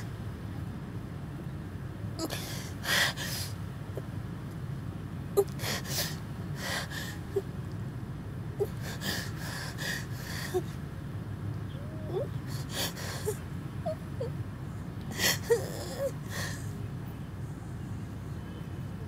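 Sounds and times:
steady low rumble: 0:00.0 - 0:19.0
woman sobbing: 0:15.1 - 0:16.7.

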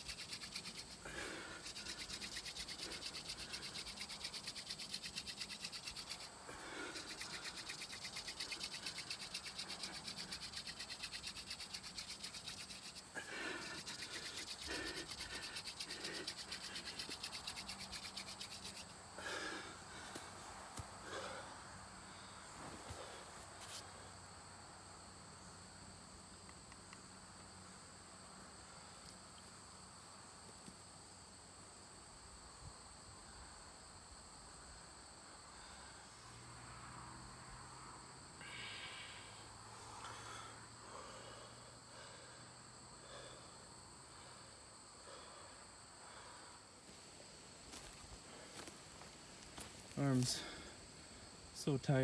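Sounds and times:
high-pitched insect chorus: 0:00.0 - 0:52.0.

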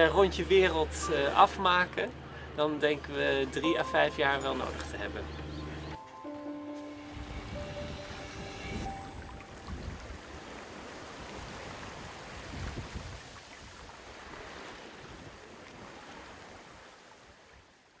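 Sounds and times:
wind on microphone: 0:07.1 - 0:13.8.

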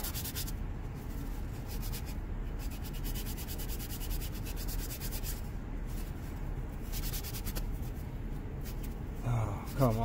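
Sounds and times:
hand sanding with sandpaper: 0:00.0 - 0:00.6, 0:01.2 - 0:06.1, 0:06.8 - 0:08.0, 0:09.6 - 0:10.0.

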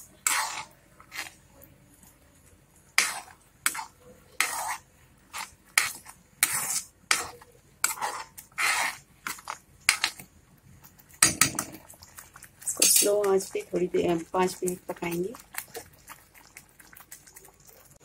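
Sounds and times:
metal spoon scraping a pan: 0:00.0 - 0:01.4, 0:02.9 - 0:10.2, 0:12.6 - 0:16.6.

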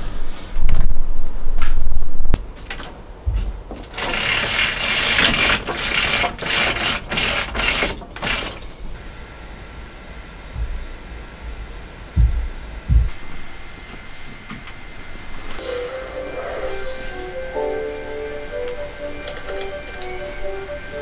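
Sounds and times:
steady high hum: 0:00.0 - 0:21.0
handling thumps: 0:02.4 - 0:04.2, 0:10.6 - 0:13.5
projector screen roller rattling: 0:02.4 - 0:09.0.

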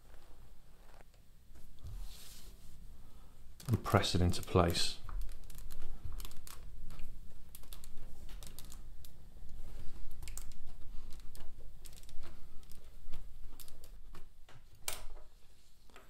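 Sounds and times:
plastic bricks clicking: 0:03.6 - 0:09.2.

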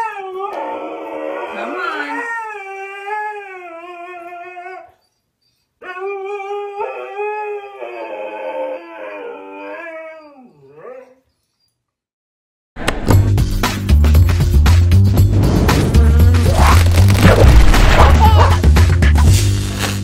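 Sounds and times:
husky howling: 0:00.0 - 0:05.0, 0:05.8 - 0:11.2.

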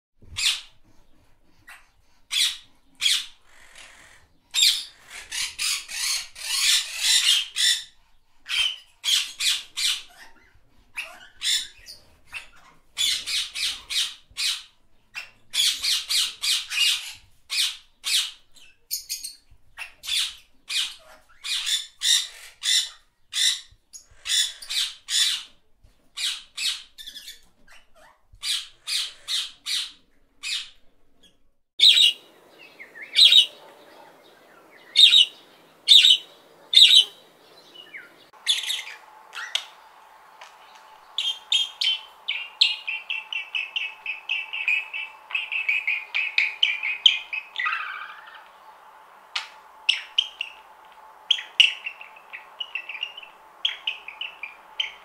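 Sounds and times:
budgerigars chirping: 0:01.7 - 0:07.9, 0:08.5 - 0:25.5, 0:31.8 - 0:39.8, 0:41.0 - 0:48.6, 0:49.4 - 0:50.7, 0:51.3 - 0:55.0
faint steady hum: 0:32.2 - 0:55.0
budgerigar warbling chatter: 0:32.8 - 0:39.7.

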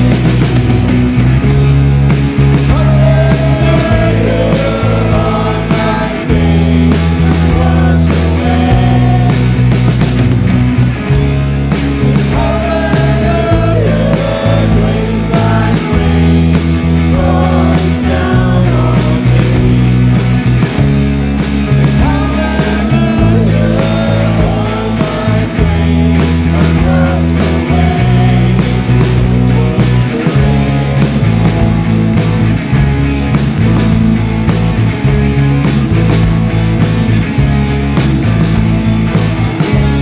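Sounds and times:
drum kit with cymbals: 0:00.0 - 0:40.0
electric bass: 0:00.0 - 0:40.0
electric guitar: 0:00.0 - 0:40.0
voices singing: 0:02.1 - 0:10.4, 0:11.7 - 0:32.7.

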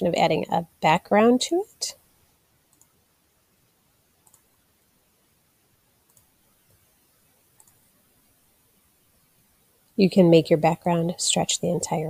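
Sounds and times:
faint computer clicks: 0:02.7 - 0:03.0, 0:04.2 - 0:04.6, 0:06.0 - 0:06.9, 0:07.5 - 0:07.9.

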